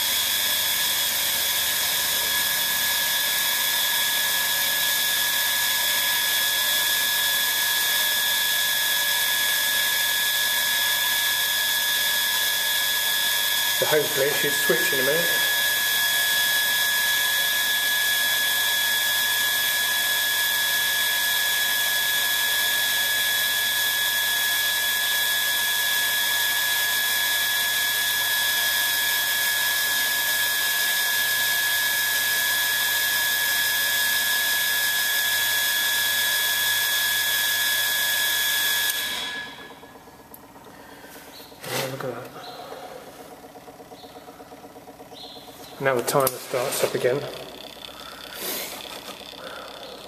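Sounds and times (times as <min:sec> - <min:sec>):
wash system whine with hiss: 0:45.5 - 0:50.0.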